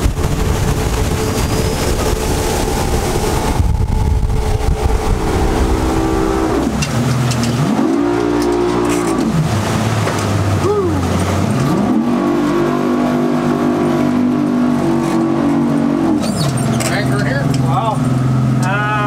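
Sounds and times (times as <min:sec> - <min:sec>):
wind rush: 0:00.0 - 0:08.4
motorboat engine running: 0:00.0 - 0:19.0
water rushing: 0:00.0 - 0:19.0.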